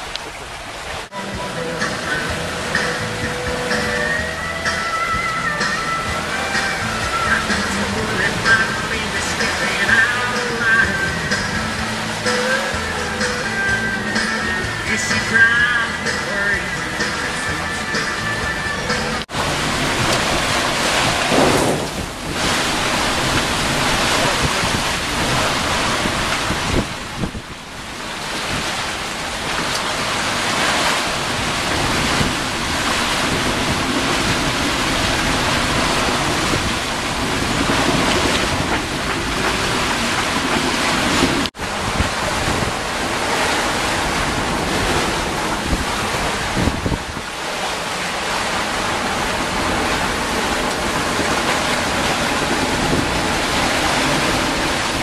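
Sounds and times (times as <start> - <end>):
breaking waves: 0.0 - 55.0
wind buffeting microphone: 19.2 - 55.0.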